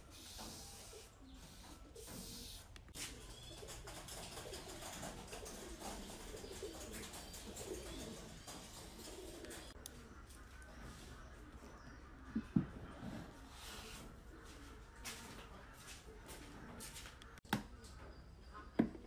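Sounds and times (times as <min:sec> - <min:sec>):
doves cooing: 0:00.0 - 0:16.8.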